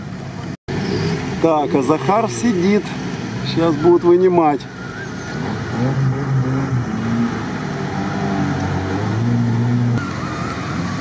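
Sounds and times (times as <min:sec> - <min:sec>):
vehicle engine revving: 0:04.7 - 0:11.0.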